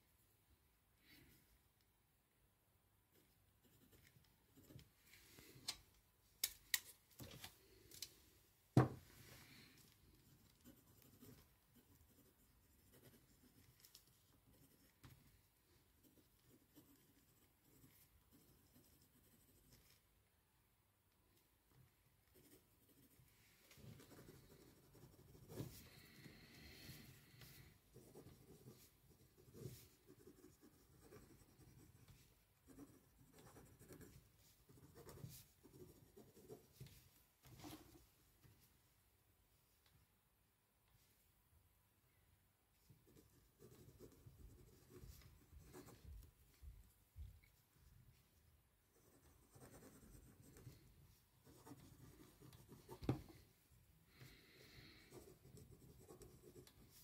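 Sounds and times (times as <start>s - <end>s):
pen scratching on paper: 10.2s - 13.8s, 14.4s - 15.2s, 16.0s - 20.0s, 23.8s - 36.8s, 43.0s - 46.2s, 48.9s - 53.4s, 55.0s - 57.0s.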